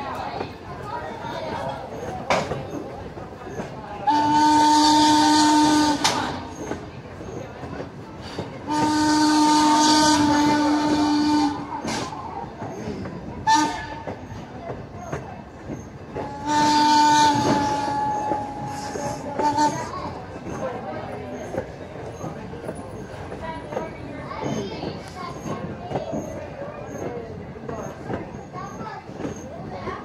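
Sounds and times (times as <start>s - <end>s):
train cars rumbling on track: 0.0s - 30.0s
steam whistle blasts: 8.7s - 11.6s, 16.2s - 19.9s.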